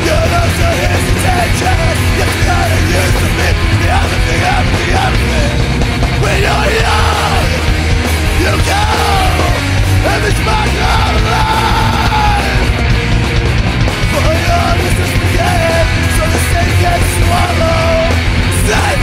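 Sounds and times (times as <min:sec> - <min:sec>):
heavy rock music: 0:00.0 - 0:19.0
person yelling vocals: 0:08.4 - 0:12.6.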